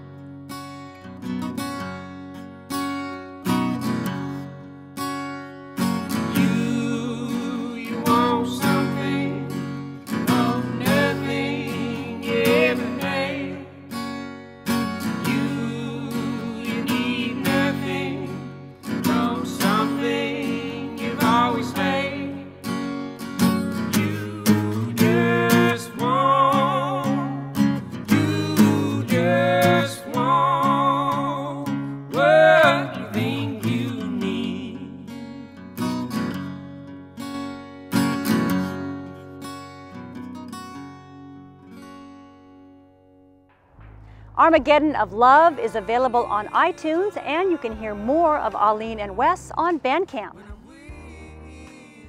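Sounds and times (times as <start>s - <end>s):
strummed acoustic guitar: 0.0s - 52.0s
woman and man singing: 6.3s - 13.8s, 15.1s - 22.6s, 23.9s - 35.3s, 44.4s - 52.0s.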